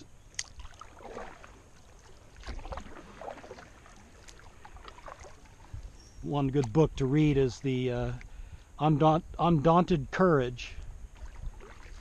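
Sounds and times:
paddle splashing in water: 0:00.0 - 0:06.8, 0:11.1 - 0:12.0.

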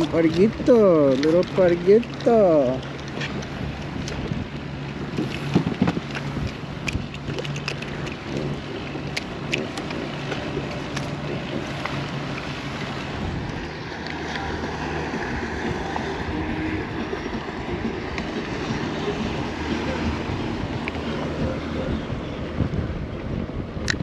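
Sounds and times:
water lapping against kayak hull: 0:00.0 - 0:24.0
wind buffeting microphone: 0:00.0 - 0:24.0
fishing tackle clicks: 0:05.2 - 0:11.2.

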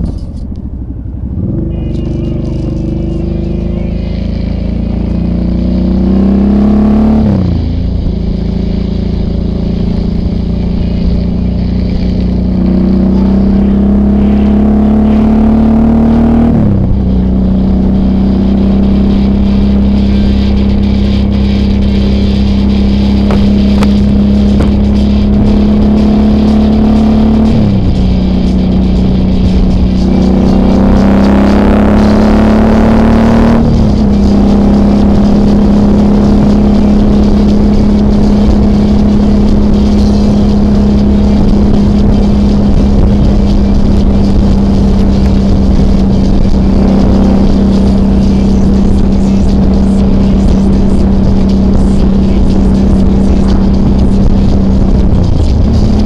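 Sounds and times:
motorcycle engine accelerating: 0:00.0 - 0:56.0.

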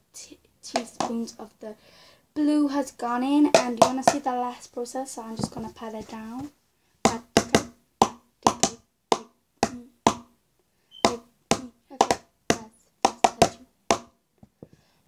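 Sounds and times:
sharp taps in plastic bowl: 0:00.8 - 0:01.2, 0:03.5 - 0:04.3, 0:07.1 - 0:10.3, 0:11.0 - 0:14.2.

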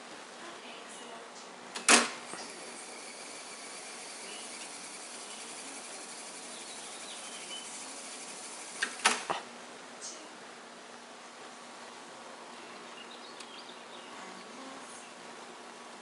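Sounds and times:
tape deck mechanical clunks: 0:01.7 - 0:02.5, 0:08.8 - 0:09.3
tape reels whirring: 0:01.8 - 0:09.3.

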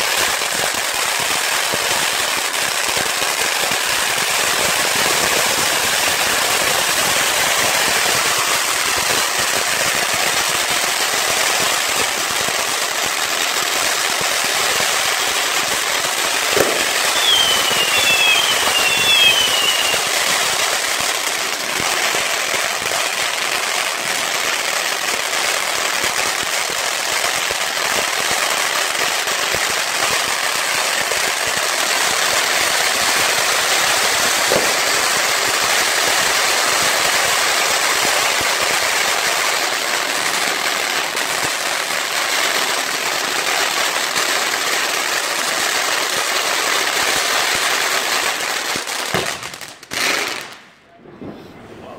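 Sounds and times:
firework fountain hissing: 0:00.0 - 0:51.8
firework crackling: 0:00.0 - 0:51.9
sharp bangs: 0:16.6 - 0:19.7
short falling whistles: 0:16.6 - 0:20.1.

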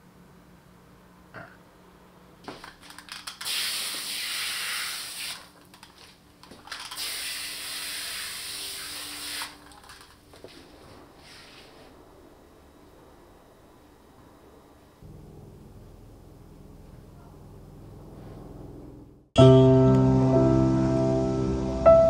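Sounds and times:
water sprayer spraying: 0:02.6 - 0:05.6, 0:06.8 - 0:10.1.

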